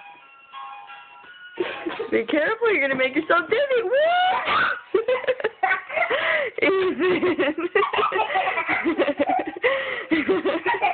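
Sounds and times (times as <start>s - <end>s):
children laughing and squealing: 3.9s - 10.9s.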